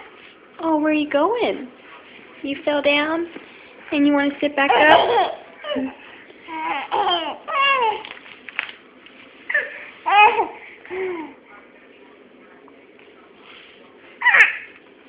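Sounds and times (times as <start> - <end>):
baby babbling: 4.7 - 8.0, 9.5 - 11.4.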